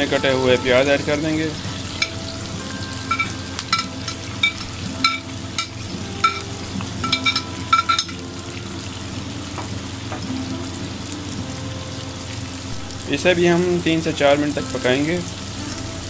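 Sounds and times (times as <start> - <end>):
onions sizzling in hot oil: 0.0 - 16.0
metal skimmer clinking on plate: 3.0 - 8.2.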